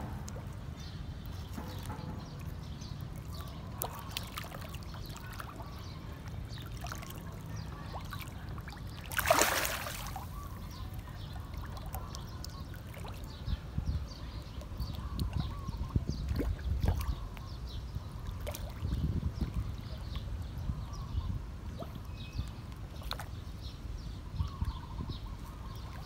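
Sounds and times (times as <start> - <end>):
fish splashing at water surface: 3.1 - 5.9, 6.5 - 10.6.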